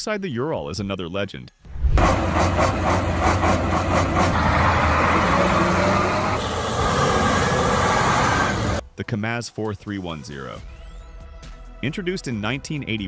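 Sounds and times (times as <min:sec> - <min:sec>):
diesel truck engine running: 0:02.0 - 0:08.8.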